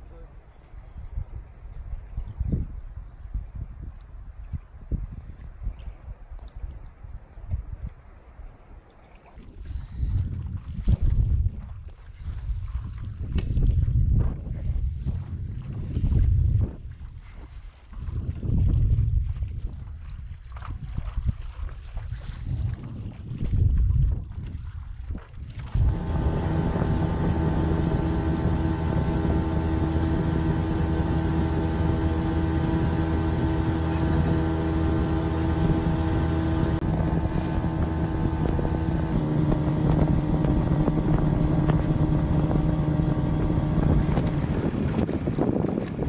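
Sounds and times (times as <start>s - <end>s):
outboard motor running: 25.5s - 46.0s.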